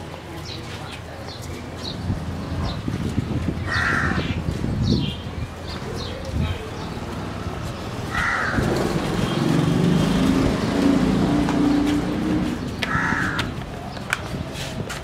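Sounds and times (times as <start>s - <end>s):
crow cawing: 3.7s - 4.3s, 8.1s - 8.7s, 12.8s - 13.6s
vehicle engine passing: 7.0s - 13.3s.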